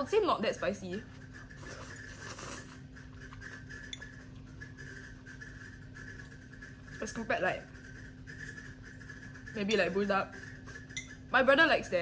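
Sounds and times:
steady hum: 0:00.0 - 0:12.0
person eating quietly: 0:01.0 - 0:07.0
person slurping noodles: 0:01.5 - 0:03.9.

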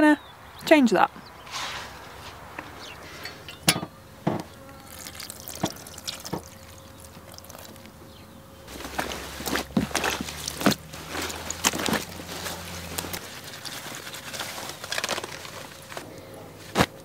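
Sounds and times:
wet clothes splashing in water: 0:04.9 - 0:07.8, 0:08.7 - 0:14.7
water dripping: 0:04.9 - 0:07.9
wet cloth squelching: 0:04.9 - 0:07.9, 0:08.7 - 0:16.0.

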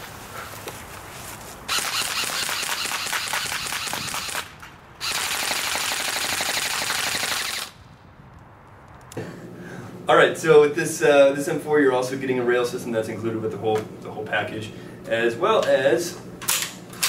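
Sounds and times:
airsoft gun full-auto bursts: 0:01.7 - 0:07.8.

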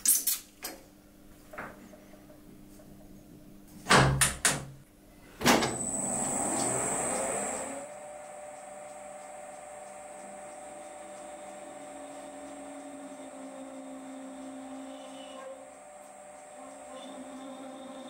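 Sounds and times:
lathe spinning up: 0:05.5 - 0:18.0
lathe running hum: 0:05.6 - 0:18.0.

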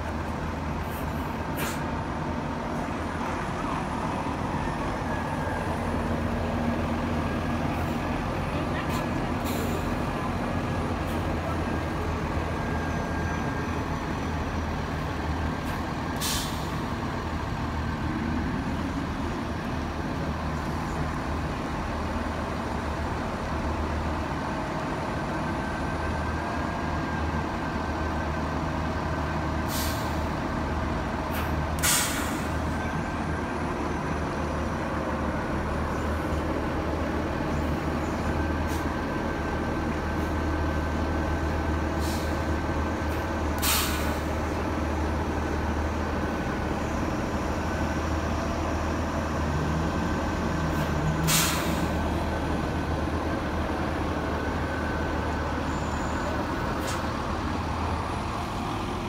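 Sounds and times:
bus engine drone: 0:00.0 - 0:59.0
air brake hissing: 0:00.9 - 0:01.9, 0:15.6 - 0:16.8, 0:29.7 - 0:30.3, 0:31.3 - 0:32.6, 0:41.9 - 0:42.4, 0:43.1 - 0:44.4, 0:50.8 - 0:52.0, 0:56.8 - 0:57.1.

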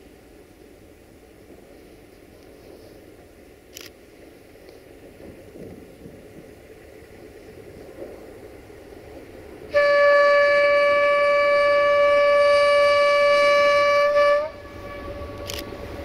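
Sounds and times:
low rumble: 0:04.9 - 0:16.0
locomotive horn blast: 0:09.7 - 0:16.0.

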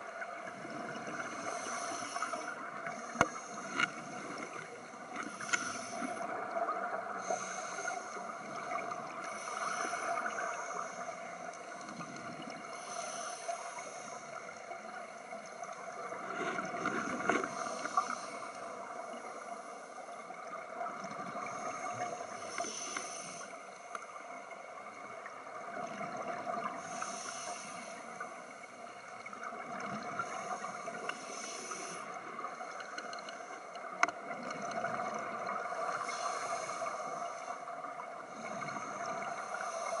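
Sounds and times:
exhaled bubbles gurgling underwater: 0:00.0 - 0:23.4, 0:24.1 - 0:40.0.

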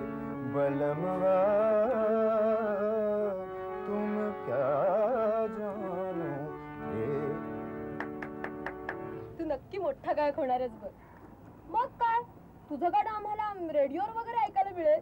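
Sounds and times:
harmonium melody: 0:00.0 - 0:10.6.

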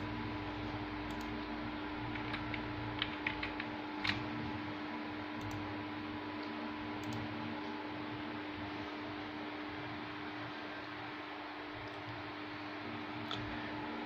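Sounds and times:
steady hum: 0:00.0 - 0:14.0
keyboard and mouse clicks: 0:02.1 - 0:04.3.

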